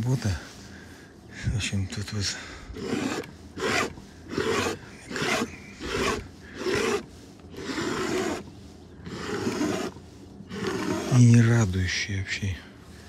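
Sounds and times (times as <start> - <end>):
palette knife scraping paint: 2.8 - 11.8.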